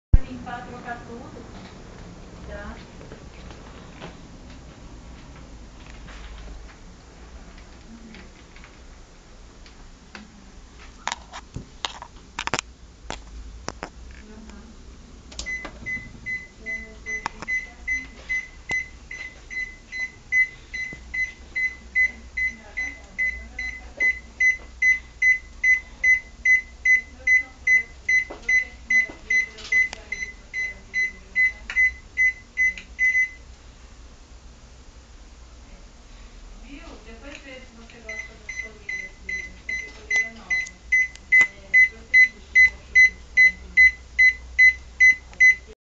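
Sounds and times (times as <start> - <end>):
microwave oven beeping: 15.4 - 33.5, 38.0 - 45.8.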